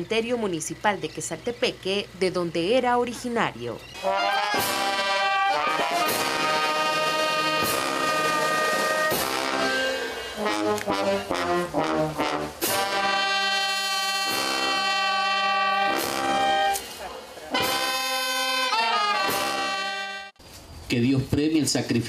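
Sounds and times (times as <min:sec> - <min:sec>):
brass band playing chords: 0:04.0 - 0:20.4.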